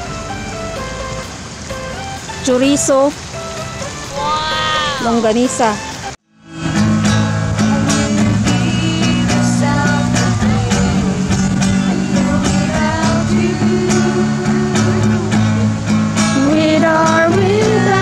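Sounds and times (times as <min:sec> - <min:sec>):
acoustic guitar strumming: 0:00.0 - 0:18.0
group singing along: 0:07.6 - 0:18.0.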